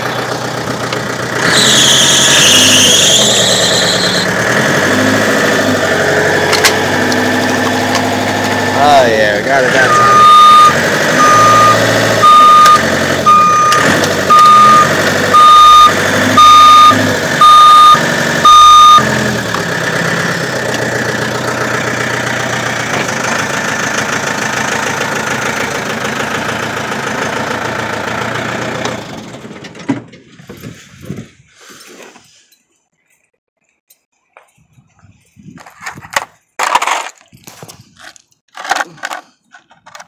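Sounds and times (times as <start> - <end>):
forklift engine running: 0.0 - 31.4
forklift reversing alarm beeping: 1.5 - 4.3, 9.7 - 19.3.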